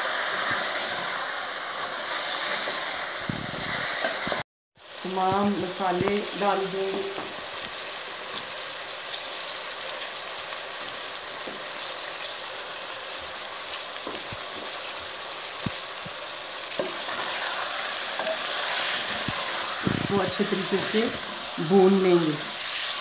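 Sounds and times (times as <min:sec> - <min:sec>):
chicken sizzling in hot oil: 0:00.0 - 0:23.0.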